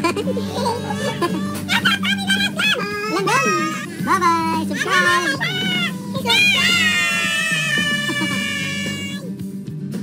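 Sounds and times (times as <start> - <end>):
child shrieking: 4.8 - 9.3.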